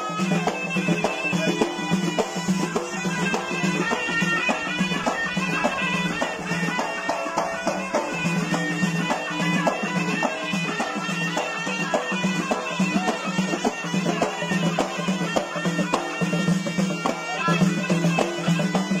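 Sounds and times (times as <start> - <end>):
hand frame drums beating: 0.0 - 19.0
reedy wind instrument: 0.0 - 19.0.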